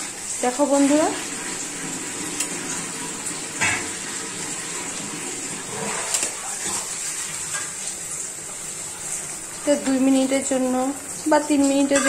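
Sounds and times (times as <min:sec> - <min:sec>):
gravy boiling and bubbling: 0:00.0 - 0:12.0.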